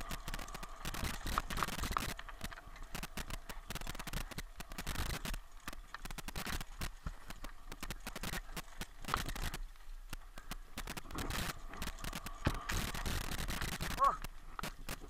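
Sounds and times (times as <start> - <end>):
mountain bike clattering on trail: 0.0 - 15.0.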